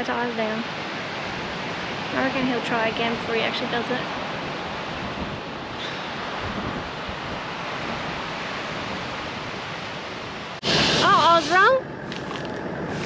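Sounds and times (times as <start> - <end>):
wind rumbling on microphone: 0.0 - 13.0
surf breaking on beach: 0.6 - 13.0.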